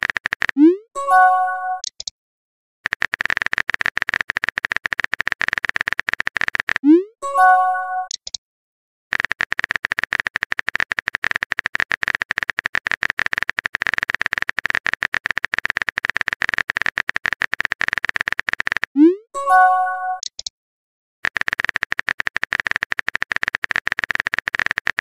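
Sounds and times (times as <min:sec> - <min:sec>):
keyboard typing clicks: 0:00.0 - 0:02.1, 0:02.9 - 0:08.4, 0:09.1 - 0:20.5, 0:21.2 - 0:25.0
message alert chime: 0:00.7 - 0:01.8, 0:06.8 - 0:08.1, 0:19.0 - 0:20.2.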